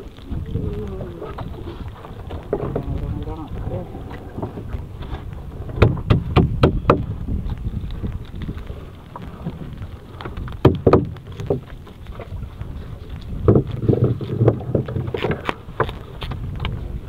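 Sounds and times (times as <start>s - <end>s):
low rumble of wind and sea: 0.0s - 17.0s
net gear knocking on hull: 5.6s - 7.2s, 10.6s - 11.7s.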